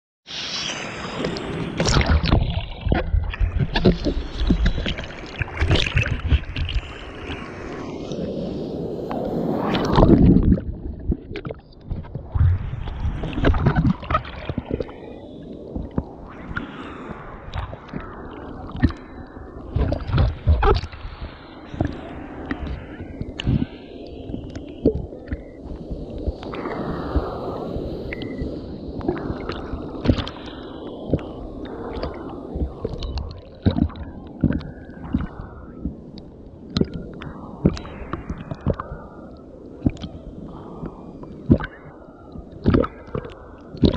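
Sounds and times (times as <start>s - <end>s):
sea water splashing: 0.3s - 43.9s
low rumble: 9.1s - 30.3s.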